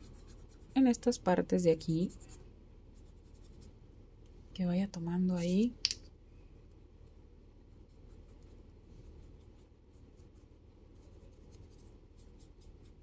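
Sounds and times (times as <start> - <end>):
scratchy brush strokes: 0.0 - 0.9, 1.8 - 3.8, 7.7 - 13.0
low steady hum: 0.0 - 13.0.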